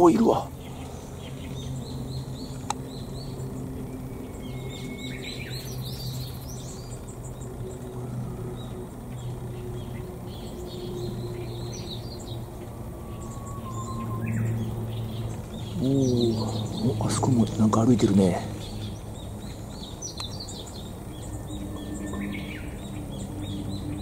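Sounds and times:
birds chirping and calling: 0.0s - 24.0s
steady low hum: 0.0s - 24.0s.

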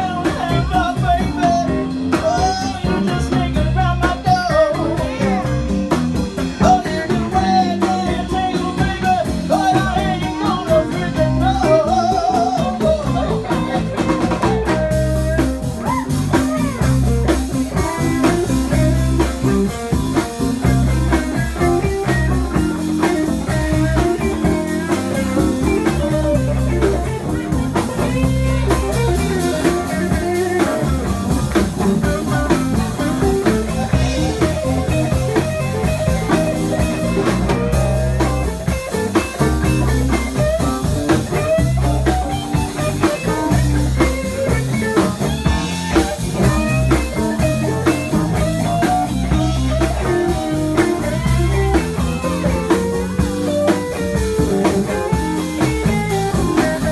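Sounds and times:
bass: 0.0s - 56.9s
drums: 0.0s - 56.9s
electric guitar lead: 0.0s - 56.9s.

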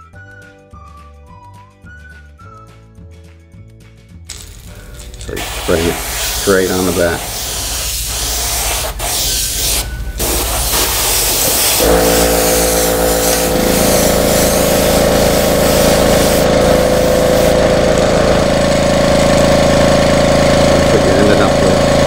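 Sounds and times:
airbrush spraying hiss: 4.3s - 17.6s
compressor motor running: 4.3s - 22.0s.

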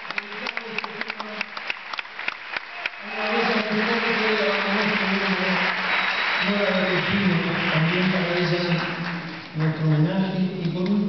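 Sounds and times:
audience clapping: 0.0s - 11.0s.

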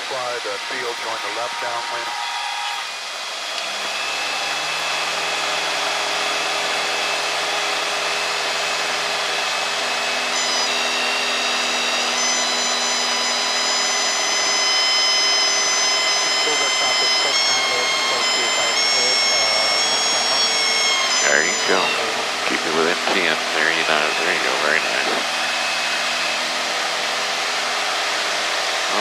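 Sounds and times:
aircraft engine and propeller drone: 0.0s - 29.0s
high whine: 0.0s - 29.0s.

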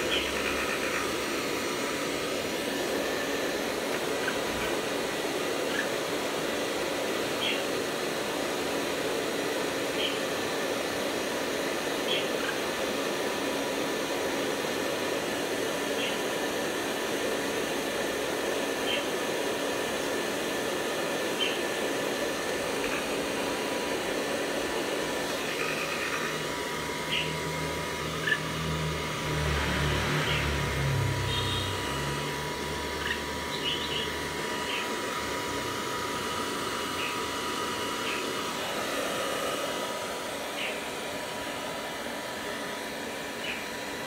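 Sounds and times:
mechanical whir with whine: 0.0s - 44.0s
high bird chirps: 33.0s - 34.9s.

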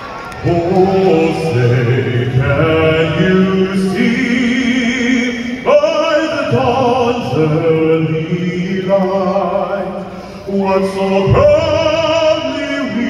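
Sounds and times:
man singing through sound system: 0.0s - 13.0s.

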